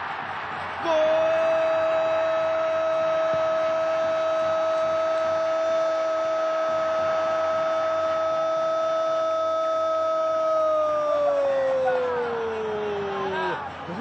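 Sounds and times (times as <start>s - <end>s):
crowd roar hiss: 0.0s - 14.0s.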